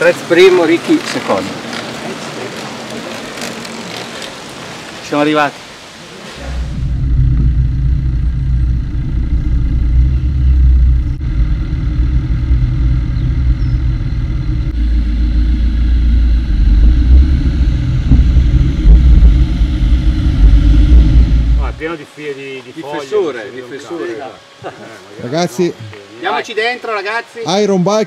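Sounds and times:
wind buffeting microphone: 6.4 - 21.8.

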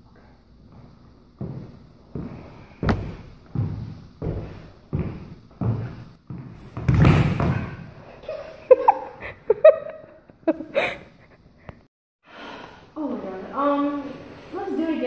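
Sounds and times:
body thudding on wooden floor: 2.8 - 5.9
people giggling: 8.2 - 11.4.

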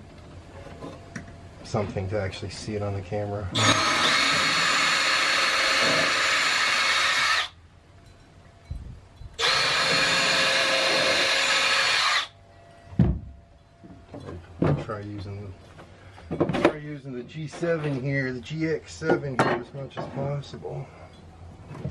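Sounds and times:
cordless drill into wood: 3.6 - 7.6, 9.4 - 12.3.

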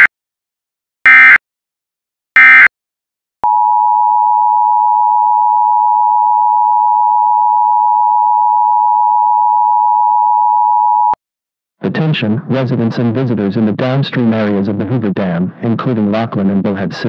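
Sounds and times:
data burst tones: 1.1 - 1.4, 2.4 - 2.7
two-tone alert signal: 2.4 - 2.7.

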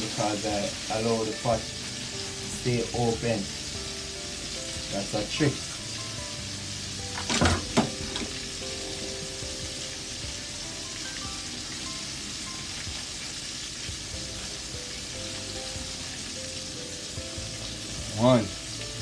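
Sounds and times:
knocks: 7.2 - 8.3
sauce bubbling in a pot: 8.0 - 19.0.

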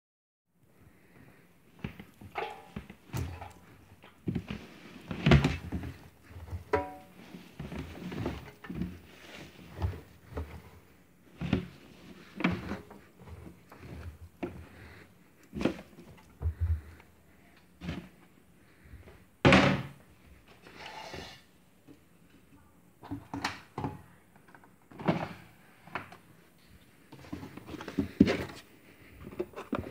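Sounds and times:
laundry basket thunks and knocks: 19.4 - 20.0.

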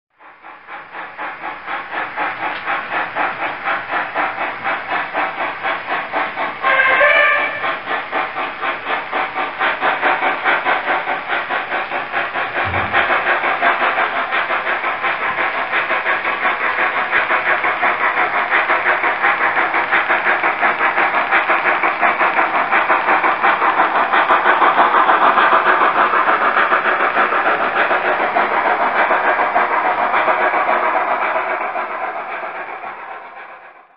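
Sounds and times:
model steam locomotive chuffing: 0.2 - 33.9.

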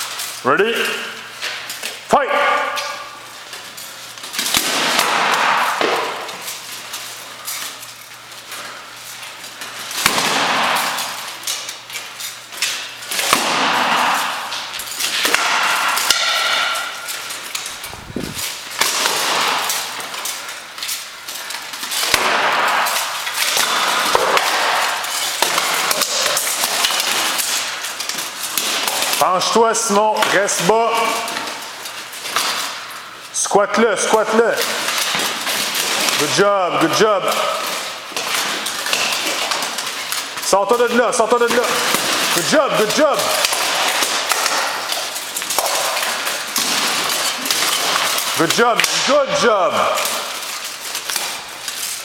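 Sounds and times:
plate armour clanging and rattling: 0.0 - 52.0
metal-on-metal strikes: 15.3 - 17.1.

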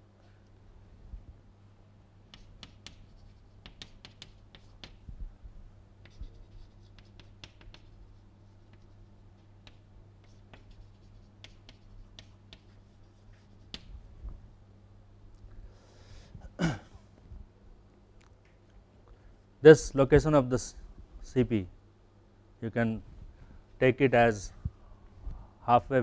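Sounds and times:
steady low hum: 0.0 - 26.0
chalk tapping and scratching: 2.3 - 5.1, 6.0 - 14.1.

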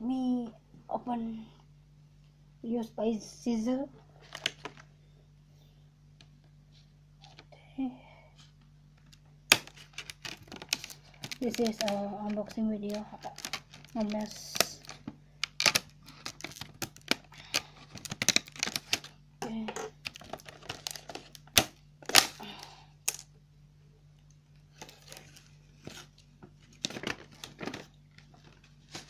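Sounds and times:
plastic crackling: 4.1 - 4.9, 9.0 - 23.3, 24.6 - 29.0
scissors snipping plastic: 9.5 - 22.4.

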